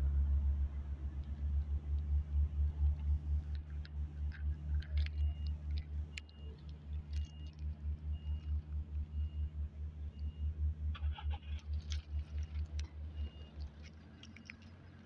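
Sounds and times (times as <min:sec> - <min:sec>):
engine idling: 0:00.0 - 0:15.0
dry grass rustling: 0:10.9 - 0:15.0.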